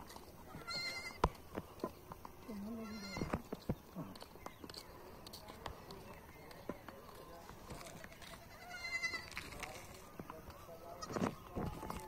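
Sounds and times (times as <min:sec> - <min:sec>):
goat kids bleating: 0:00.5 - 0:01.3, 0:02.6 - 0:03.4, 0:08.2 - 0:09.4, 0:11.0 - 0:12.0.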